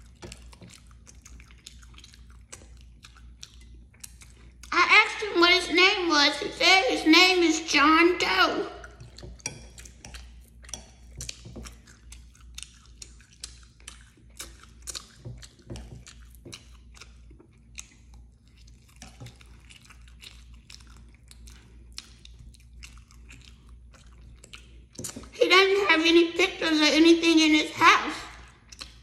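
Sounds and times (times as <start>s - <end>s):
chewing soft food: 0.0s - 5.4s, 8.7s - 25.4s, 28.2s - 29.0s.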